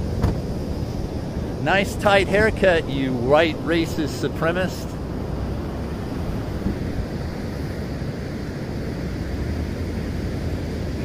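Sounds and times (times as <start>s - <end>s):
ocean surf: 0.0s - 11.0s
wind on microphone: 4.8s - 11.0s.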